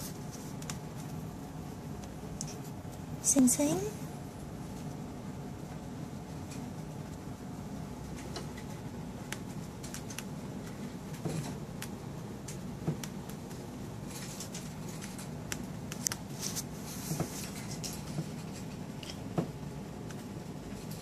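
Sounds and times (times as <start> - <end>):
steady low hum: 0.0 - 21.0
animals clicking and tapping: 8.1 - 13.6.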